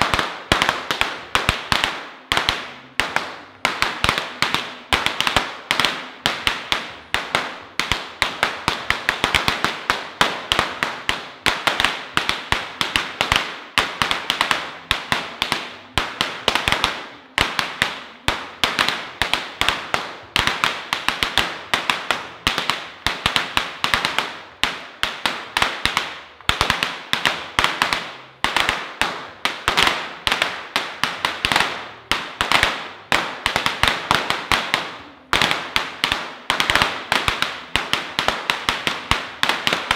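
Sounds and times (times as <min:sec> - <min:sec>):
firecrackers popping: 0:00.0 - 0:39.9.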